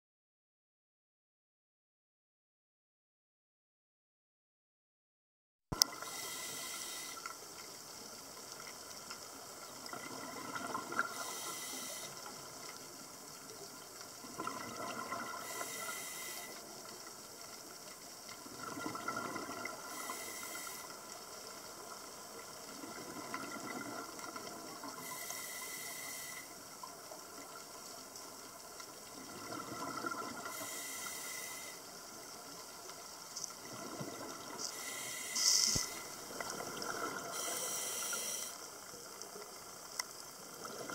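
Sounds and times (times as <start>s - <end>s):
regulator inhale hiss: 5.8s - 7.9s, 11.0s - 12.8s, 15.3s - 17.0s, 19.7s - 21.5s, 24.9s - 27.0s, 30.4s - 32.1s, 34.5s - 38.8s
steady underwater hiss: 5.8s - 40.9s
exhaled bubbles: 9.7s - 11.3s, 14.2s - 16.0s, 18.4s - 20.0s, 22.7s - 25.0s, 29.1s - 30.8s, 33.6s - 37.5s.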